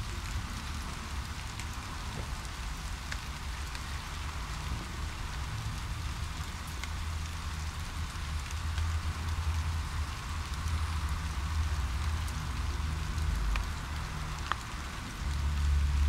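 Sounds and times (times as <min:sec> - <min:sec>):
rain pattering on paving: 0:00.0 - 0:16.0.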